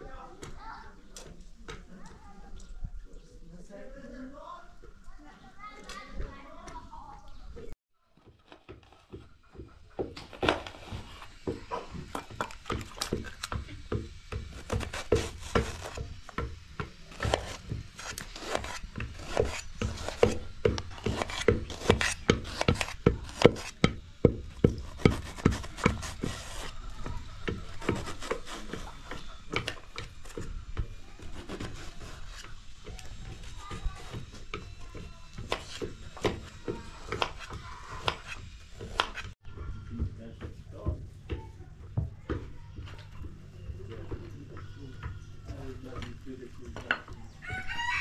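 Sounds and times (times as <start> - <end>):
pestle pounding in wooden mortar: 8.2 - 42.6
knife cutting on metal tray: 17.1 - 23.8.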